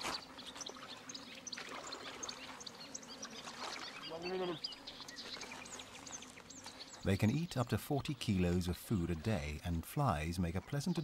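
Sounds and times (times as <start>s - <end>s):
water lapping over shingle: 0.0s - 4.6s
small birds chirping: 0.0s - 11.0s.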